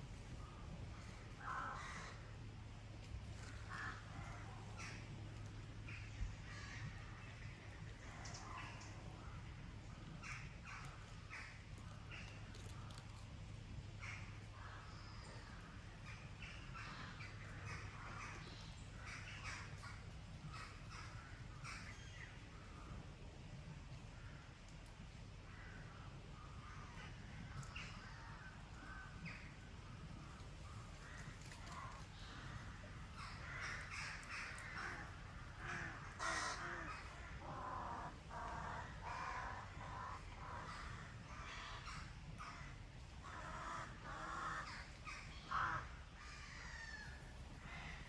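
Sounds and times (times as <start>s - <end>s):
crow cawing: 1.4s - 2.2s, 3.4s - 5.0s, 30.8s - 48.0s.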